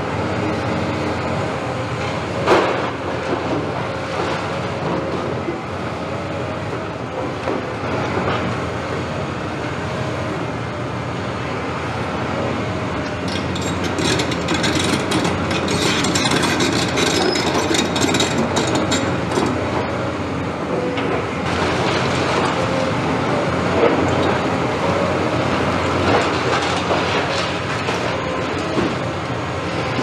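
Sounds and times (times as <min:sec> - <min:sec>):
excavator diesel engine running: 0:00.0 - 0:30.0
masonry cracking and clattering: 0:13.2 - 0:19.6.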